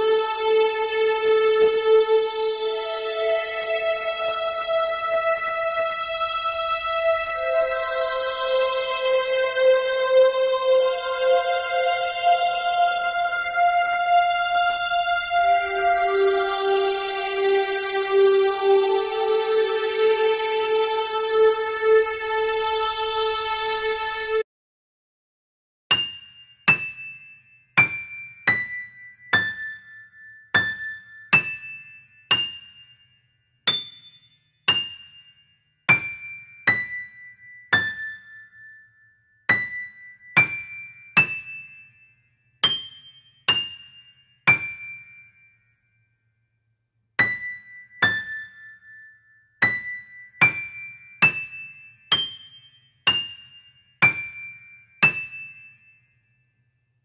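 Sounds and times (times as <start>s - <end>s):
bell-like keyboard melody: 0.0s - 24.4s.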